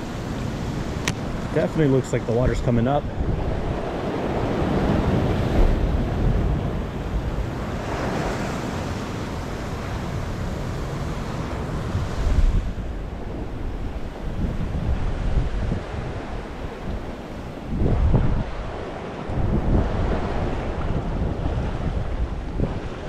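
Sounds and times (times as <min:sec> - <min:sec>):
ocean surf washing through rocks: 0:00.0 - 0:23.0
wind buffeting microphone: 0:00.0 - 0:23.0.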